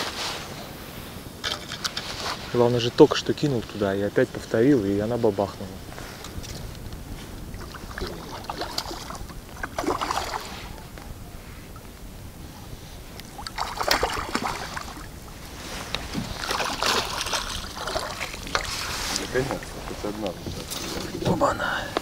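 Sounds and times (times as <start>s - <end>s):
water splashing against boat: 5.3s - 12.0s, 13.1s - 22.0s.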